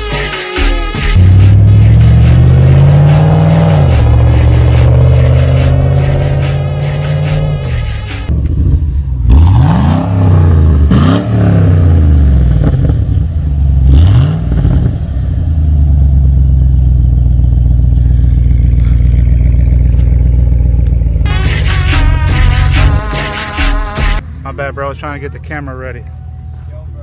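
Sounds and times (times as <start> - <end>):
car engine revving: 1.1 - 21.3
car engine idling: 1.2 - 9.5, 11.8 - 21.3.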